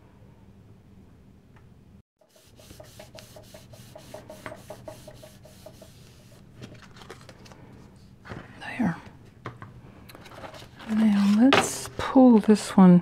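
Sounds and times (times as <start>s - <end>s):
hand rubbing over paper: 2.3s - 6.8s.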